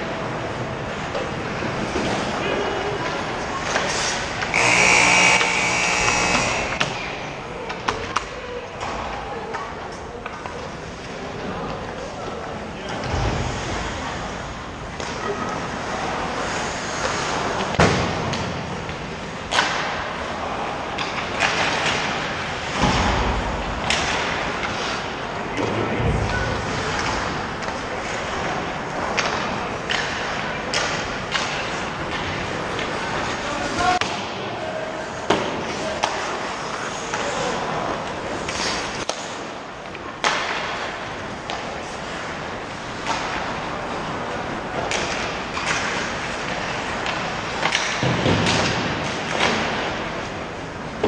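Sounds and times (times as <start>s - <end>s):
pucks and sticks thudding on ice: 0.9s - 13.9s, 14.9s - 51.0s
skate blades scraping ice: 3.6s - 7.1s, 15.0s - 17.7s, 35.1s - 39.6s
skates hissing on ice: 15.8s - 17.6s.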